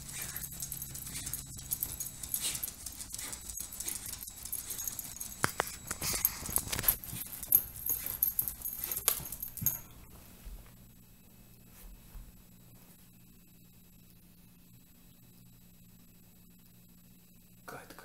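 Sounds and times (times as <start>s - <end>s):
dog claws scratching on stone: 0.0s - 9.6s.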